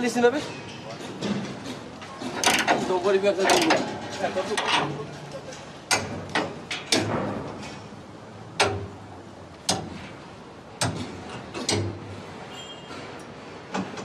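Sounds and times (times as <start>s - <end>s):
hammers striking steel panels: 1.1s - 5.2s, 5.8s - 12.2s.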